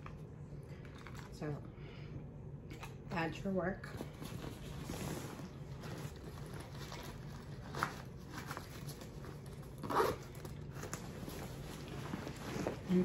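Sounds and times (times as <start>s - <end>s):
backpack zipper pulled: 9.8s - 10.2s.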